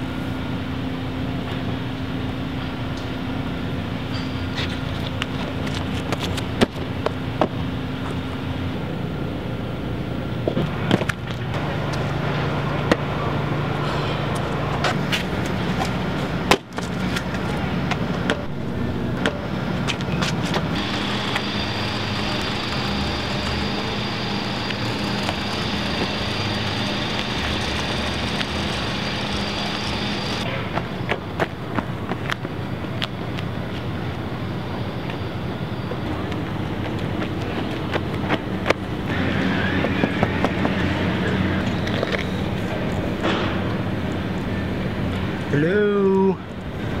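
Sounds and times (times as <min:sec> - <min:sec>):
engines droning: 0:00.0 - 0:47.0
thin high whine: 0:19.4 - 0:47.0.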